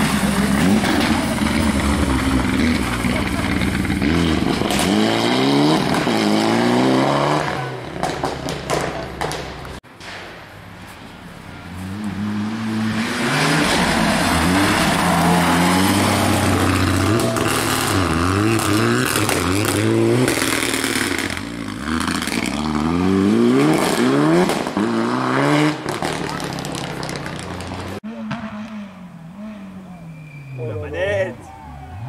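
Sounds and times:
rally car engine revving: 0:00.0 - 0:08.6, 0:11.8 - 0:30.2.

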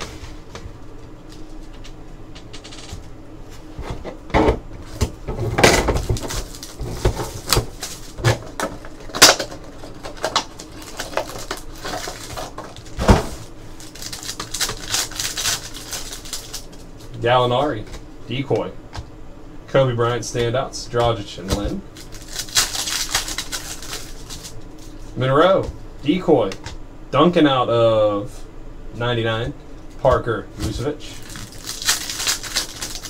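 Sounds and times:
card packs clicking and rustling: 0:05.4 - 0:16.9, 0:22.0 - 0:25.0, 0:31.2 - 0:33.0.

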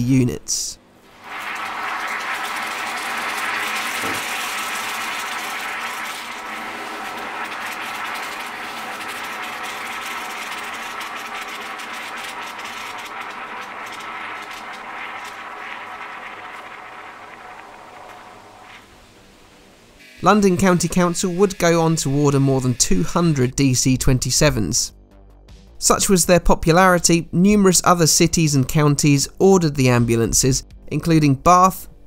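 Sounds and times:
powder fizzing in water: 0:01.0 - 0:23.5.

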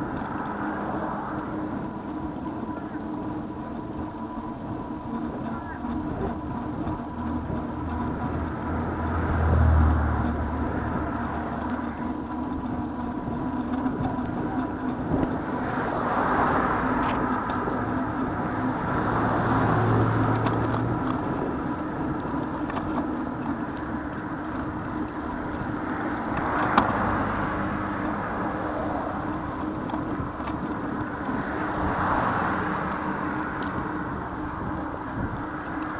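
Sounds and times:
steady background hum: 0:00.0 - 0:09.6
cars passing with deep rumble: 0:00.0 - 0:35.9.

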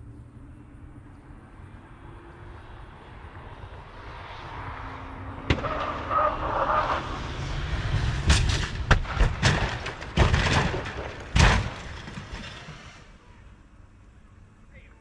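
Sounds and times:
car crashing and thudding on ground: 0:05.5 - 0:06.3, 0:07.9 - 0:13.2
scraping: 0:08.2 - 0:13.2.

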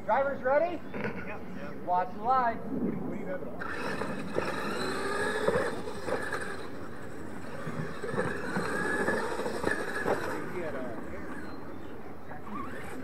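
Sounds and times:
rc truck motors whining: 0:03.6 - 0:13.0.

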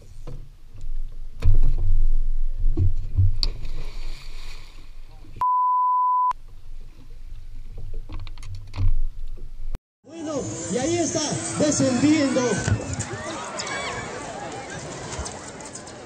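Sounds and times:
water splashing: 0:03.3 - 0:05.4
high censor beep: 0:05.4 - 0:06.3.

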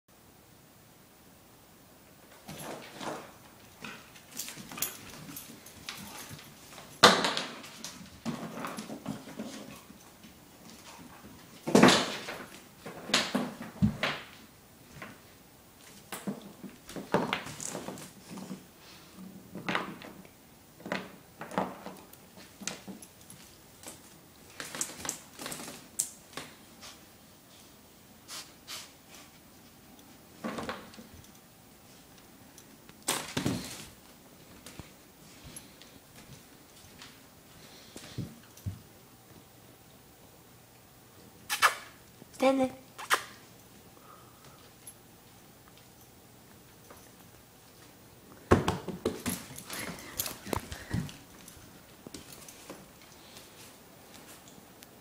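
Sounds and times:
dog claws skittering on wood floor: 0:02.3 - 0:14.4, 0:15.8 - 0:18.7, 0:19.5 - 0:27.0, 0:46.8 - 0:55.0.

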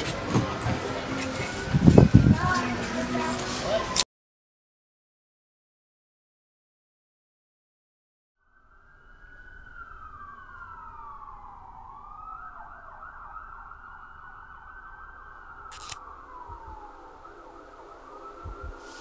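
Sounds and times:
emergency siren wailing: 0:00.0 - 0:04.0, 0:08.4 - 0:19.0
low rumble: 0:08.6 - 0:19.0.

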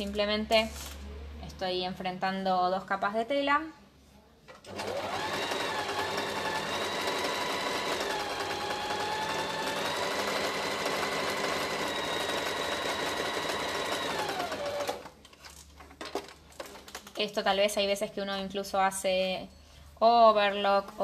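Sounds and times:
electric sewing machine stitching: 0:04.7 - 0:15.1.

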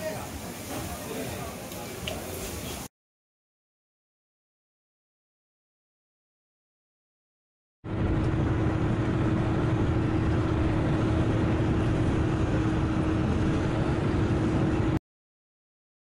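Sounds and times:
vehicle engine running: 0:07.9 - 0:15.0.

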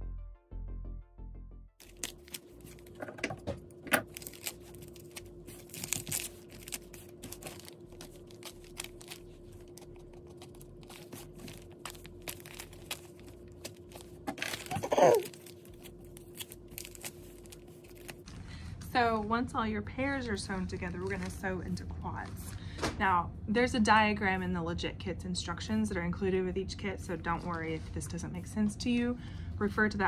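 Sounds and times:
paper and fabric rustling: 0:01.8 - 0:03.2, 0:04.0 - 0:19.5, 0:20.3 - 0:22.6.

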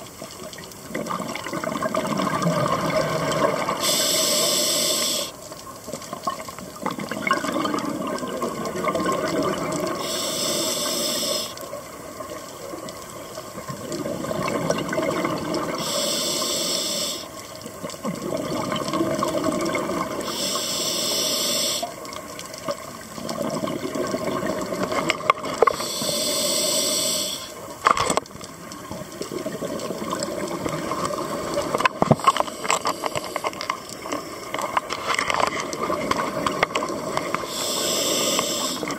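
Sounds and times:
regulator hissing inhalations: 0:03.8 - 0:05.4, 0:09.9 - 0:11.6, 0:15.8 - 0:17.4, 0:20.2 - 0:22.0, 0:25.8 - 0:27.6, 0:37.4 - 0:38.9.

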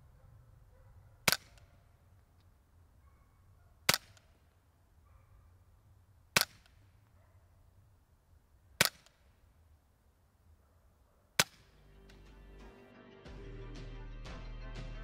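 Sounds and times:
suppressed rifle shots: 0:01.2 - 0:01.9, 0:03.8 - 0:04.4, 0:06.3 - 0:06.9, 0:11.4 - 0:11.8.

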